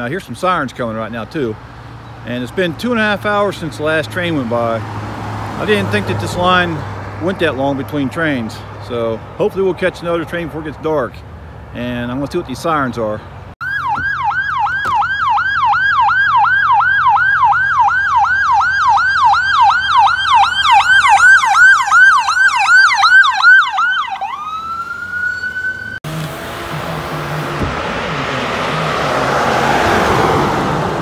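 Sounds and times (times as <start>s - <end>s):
ambulance siren yelping: 13.6s - 26.0s.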